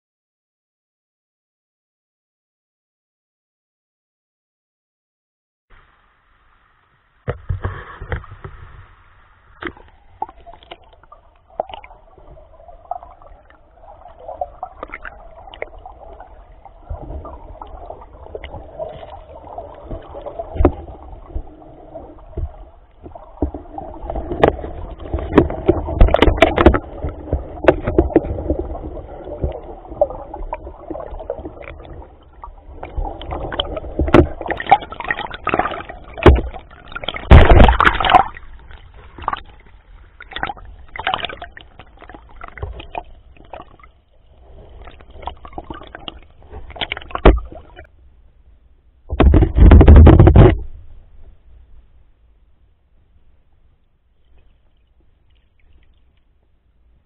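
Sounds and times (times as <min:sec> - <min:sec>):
muffled creek water underwater: 0:05.7 - 0:57.0
sharp clicks and knocks: 0:49.1 - 0:50.8.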